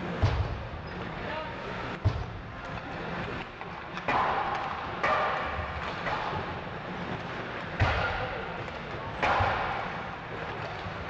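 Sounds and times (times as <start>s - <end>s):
pucks hitting boards: 3.4s - 6.6s, 7.7s - 11.0s.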